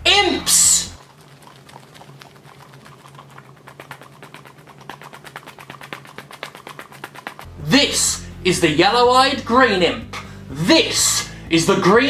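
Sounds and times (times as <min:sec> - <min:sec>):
rapid light clicks: 0:01.1 - 0:07.5.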